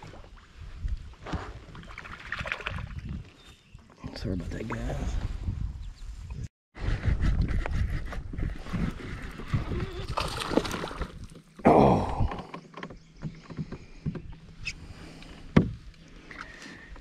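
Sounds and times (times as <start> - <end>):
knocks and rubbing in kayak: 7.0 - 11.6, 15.4 - 15.9.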